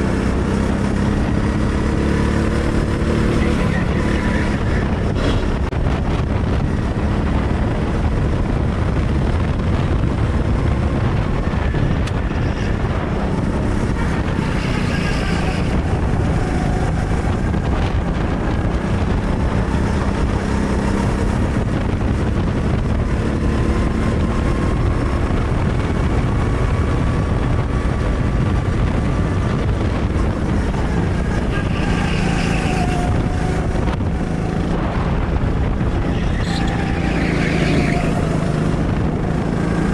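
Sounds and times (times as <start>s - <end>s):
go-kart engine revving: 0.0s - 5.7s, 9.9s - 39.9s
wind and road noise: 0.0s - 39.9s.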